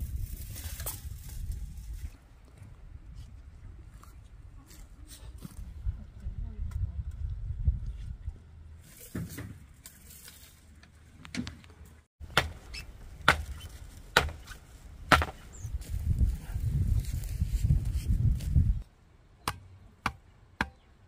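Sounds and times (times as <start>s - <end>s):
chopping strikes on wood: 12.3s - 12.6s, 13.2s - 14.5s, 15.1s - 15.4s, 19.4s - 20.8s.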